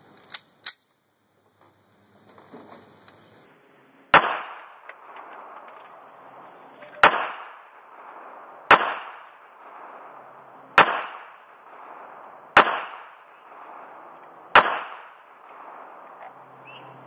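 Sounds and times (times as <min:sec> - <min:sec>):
pistol shots echoing: 0:04.1 - 0:06.1, 0:07.0 - 0:16.1.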